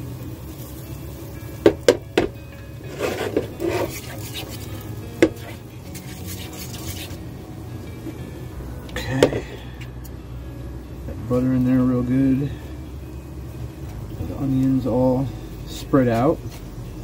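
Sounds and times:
spatula knocking in frying pan: 0:01.6 - 0:02.4
spatula scraping pan: 0:02.8 - 0:07.2.

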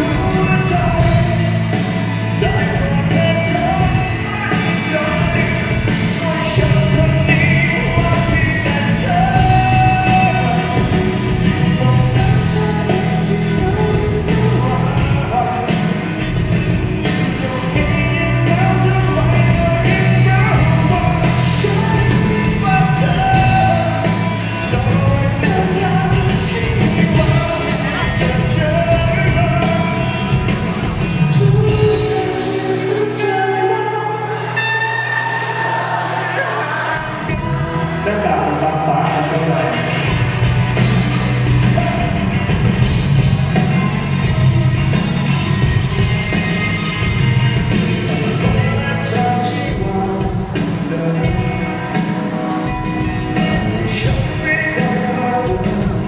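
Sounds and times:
man singing lead: 0:00.0 - 0:44.6, 0:47.0 - 0:56.0
bass guitar: 0:00.0 - 0:56.0
drums: 0:00.0 - 0:56.0
electric guitar: 0:00.0 - 0:56.0.

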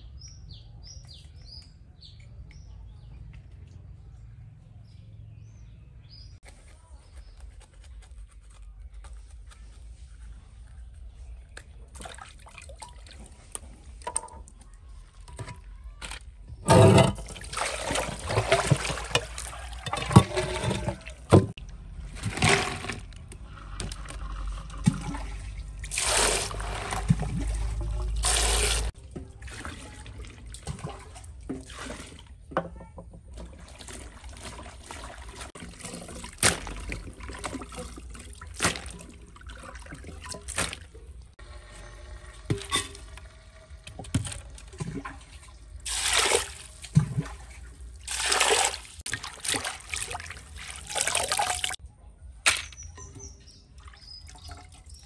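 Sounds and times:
water pouring and sloshing in basin: 0:11.6 - 0:51.8, 0:52.5 - 0:55.0.

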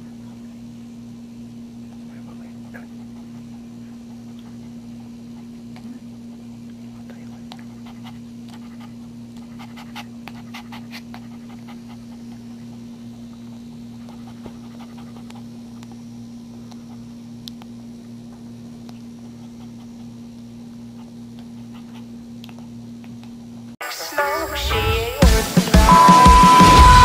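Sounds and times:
steady low hum: 0:00.0 - 0:27.0
dog panting: 0:01.9 - 0:17.2, 0:18.8 - 0:23.7
puppy suckling clicks: 0:14.0 - 0:16.0, 0:16.6 - 0:17.7, 0:21.3 - 0:23.4.

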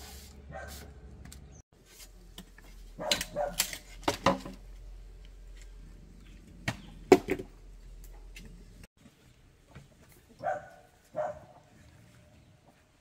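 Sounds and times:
dog barking: 0:00.5 - 0:00.9, 0:03.0 - 0:03.6, 0:10.4 - 0:11.6.

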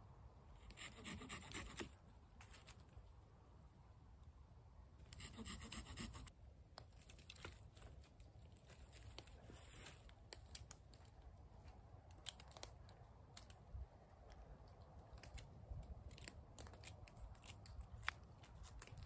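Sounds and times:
twigs snapping: 0:06.7 - 0:19.0.

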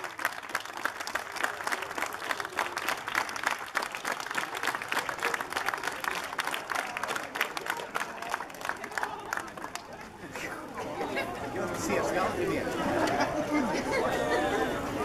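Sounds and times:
crowd clapping: 0:00.0 - 0:10.5
faint voices chattering: 0:00.0 - 0:15.0.

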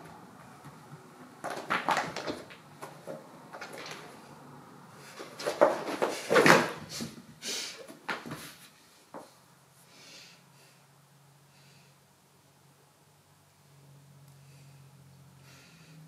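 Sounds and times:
cat scuffling at rubber mat: 0:05.0 - 0:07.2, 0:07.8 - 0:09.3.

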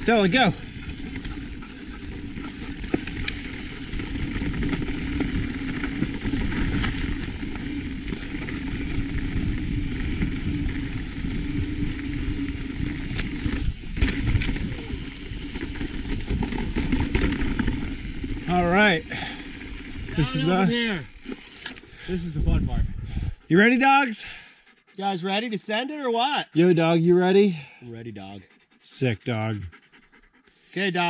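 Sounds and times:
wind on microphone: 0:00.0 - 0:18.4, 0:22.2 - 0:23.5
bike tyres rumbling over dirt: 0:00.0 - 0:21.6.

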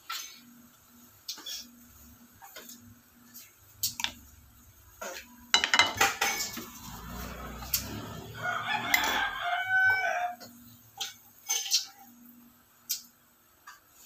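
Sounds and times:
spatula scraping frying pan: 0:01.3 - 0:03.6, 0:06.0 - 0:12.2
rooster crowing: 0:06.6 - 0:10.6.

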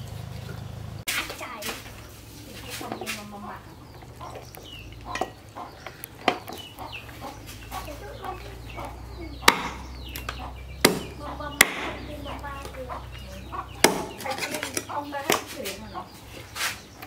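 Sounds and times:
chickens clucking: 0:00.0 - 0:17.0
sharp knocks: 0:09.4 - 0:12.2, 0:13.7 - 0:15.6.

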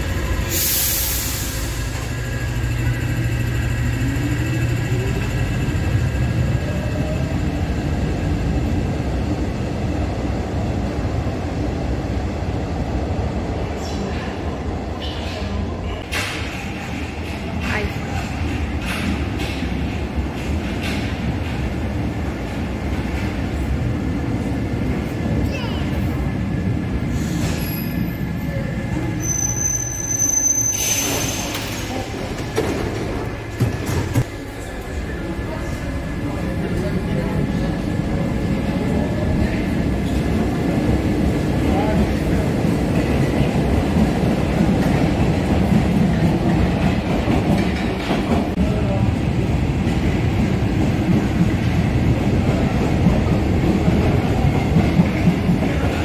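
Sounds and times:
train rumbling: 0:00.0 - 0:56.0
wheel squeal: 0:29.2 - 0:31.7.

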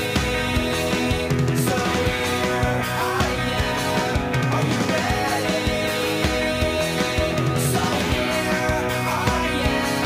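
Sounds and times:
rock music with guitar: 0:00.0 - 0:10.0.

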